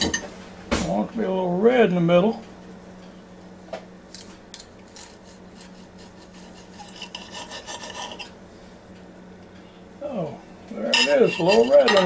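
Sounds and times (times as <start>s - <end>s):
steady low hum: 0.0s - 12.0s
knife sawing through steak: 5.0s - 8.3s.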